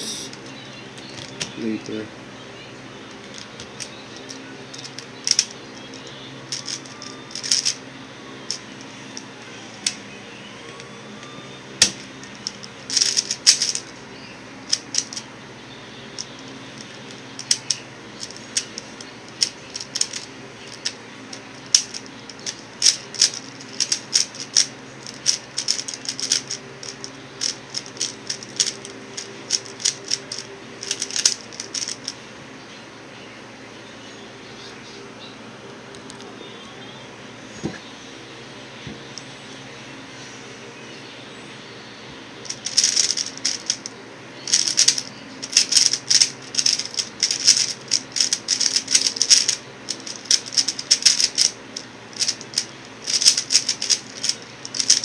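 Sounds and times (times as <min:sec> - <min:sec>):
electric fan hum: 0:00.0 - 0:55.0
plastic puzzle cube clacking: 0:03.1 - 0:05.9, 0:06.5 - 0:07.8, 0:11.8 - 0:13.9, 0:14.7 - 0:15.2, 0:16.2 - 0:32.2, 0:42.5 - 0:43.9, 0:44.5 - 0:55.0.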